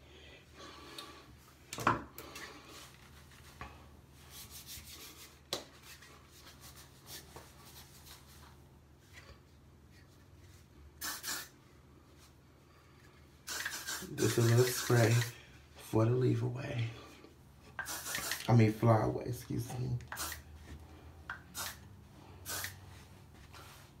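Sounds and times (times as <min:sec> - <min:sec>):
hair brushing: 0:04.2 - 0:08.5, 0:13.6 - 0:15.4.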